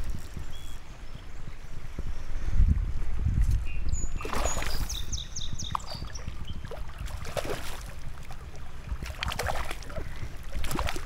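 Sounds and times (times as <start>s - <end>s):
fish thrashing and splashing: 4.2s - 5.0s, 5.7s - 11.0s
running water: 4.2s - 11.0s.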